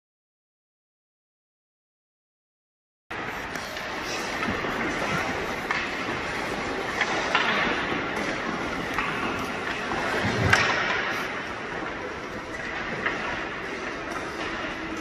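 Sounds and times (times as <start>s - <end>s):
hockey sticks and pucks clacking: 3.1s - 15.0s
skates scraping on ice: 3.1s - 15.0s.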